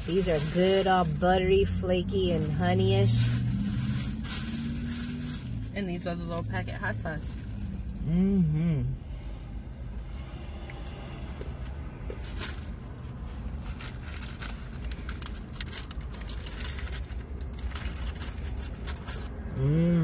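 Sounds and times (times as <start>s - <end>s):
food clicks and crackles: 13.8s - 19.5s.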